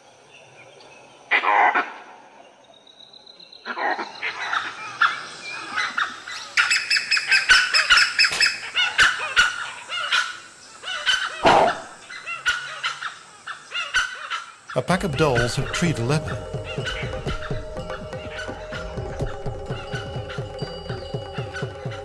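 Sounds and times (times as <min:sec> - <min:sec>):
wild dogs yelping: 0:07.3 - 0:14.6, 0:16.4 - 0:22.0.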